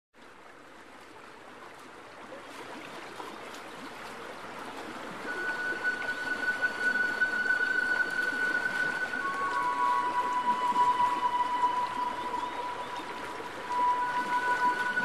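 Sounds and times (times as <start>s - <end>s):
fountain water trickling and splashing: 0.2s - 15.0s
steady high tone: 5.3s - 15.0s.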